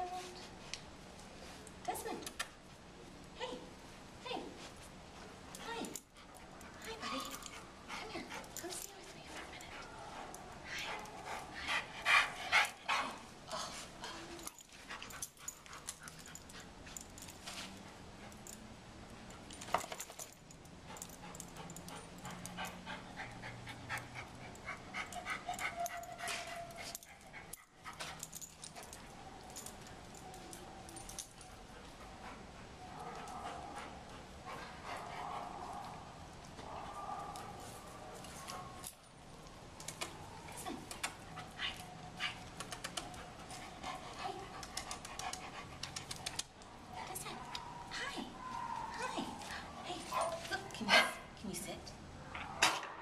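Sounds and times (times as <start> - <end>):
dog panting: 5.2 - 19.6, 20.8 - 36.3, 39.8 - 51.3.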